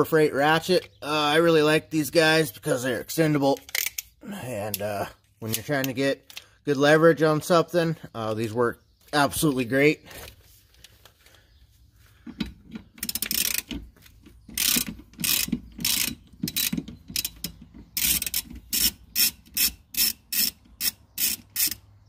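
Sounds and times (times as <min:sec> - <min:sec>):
ratchet clicking: 0:03.6 - 0:04.1, 0:12.4 - 0:13.8, 0:14.5 - 0:21.9.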